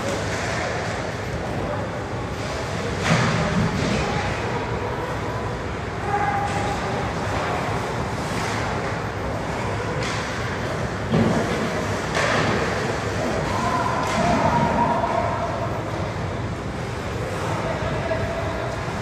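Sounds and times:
skates sticks and puck scraping: 0.0s - 1.6s, 6.2s - 15.2s
arena noise: 0.0s - 19.0s.

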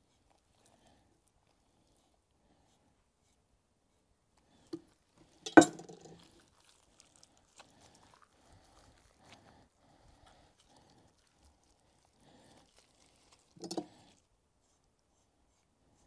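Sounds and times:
wet squishing of raw meat: 6.0s - 14.4s.

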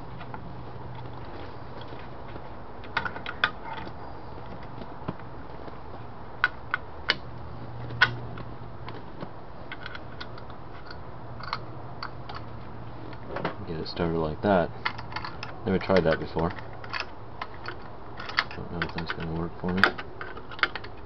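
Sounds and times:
low steady hum: 0.0s - 21.0s
small metallic clicks and taps: 7.8s - 12.5s, 14.8s - 21.0s.

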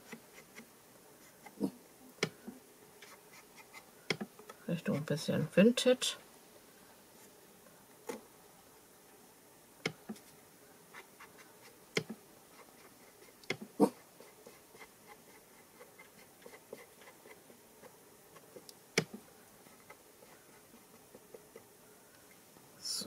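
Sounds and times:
ink dauber tapping and rubbing paper: 9.9s - 21.7s.

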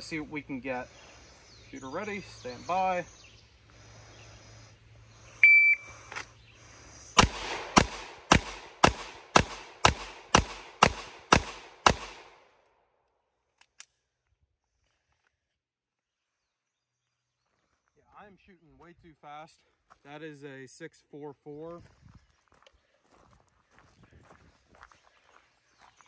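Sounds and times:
shot timer beep: 5.4s - 5.9s
pistol shots: 7.2s - 12.5s.

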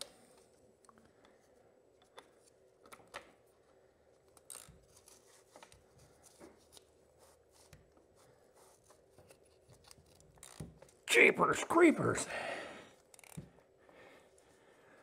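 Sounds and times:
strap wrench clicks and rubbing: 4.3s - 5.8s, 9.2s - 11.0s, 13.0s - 13.6s.

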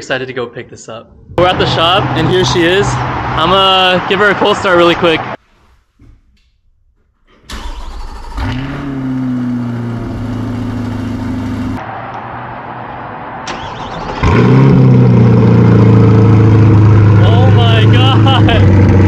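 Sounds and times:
car engine starting and idling: 7.3s - 12.2s, 13.2s - 19.0s.

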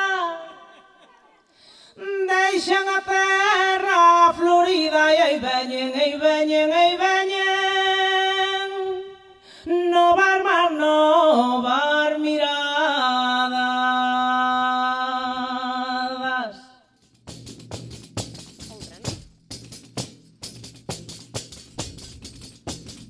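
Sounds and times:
woman singing: 0.0s - 1.4s, 2.0s - 16.7s.

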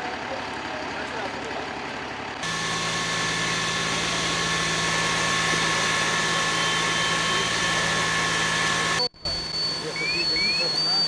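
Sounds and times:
engine running steadily: 0.0s - 11.0s
steady whine: 2.4s - 11.0s.

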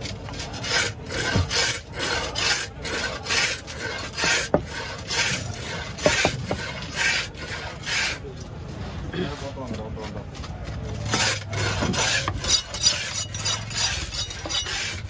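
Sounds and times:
knife blade scraping: 11.1s - 15.0s.

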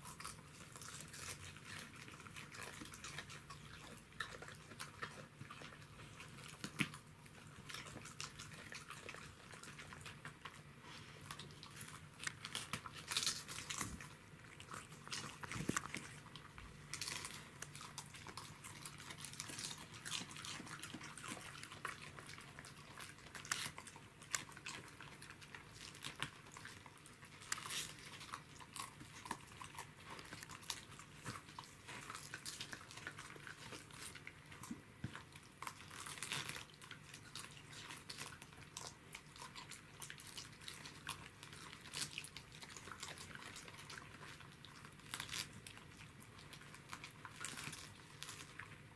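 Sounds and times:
dogs crunching cabbage: 0.0s - 48.9s.

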